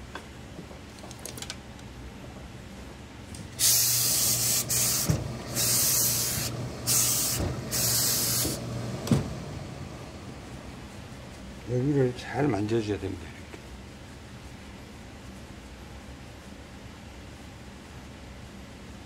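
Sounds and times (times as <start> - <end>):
low steady hum: 0.0 - 19.0
steam iron hissing: 3.6 - 10.3.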